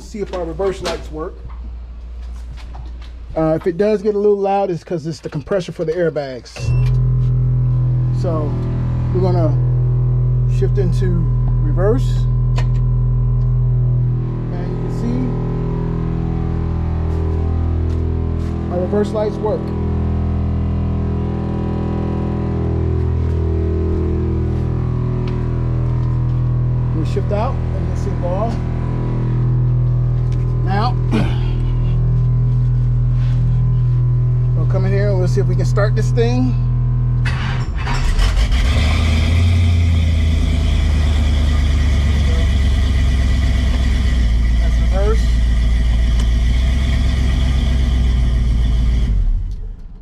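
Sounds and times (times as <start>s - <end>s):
air compressor humming: 6.6s - 49.4s
engine fast idle: 35.2s - 50.0s
engine cranking: 37.2s - 50.0s.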